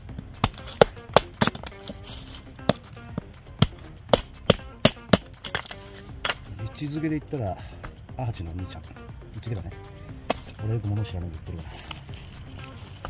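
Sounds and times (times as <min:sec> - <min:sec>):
background music: 0:00.0 - 0:13.0
sharp irregular knocks: 0:00.2 - 0:06.6.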